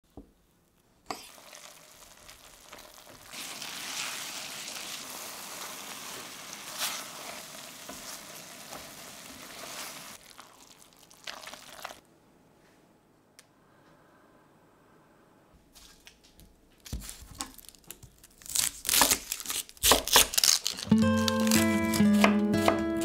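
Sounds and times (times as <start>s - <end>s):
food sizzling in a frying pan: 1.1s - 12.0s.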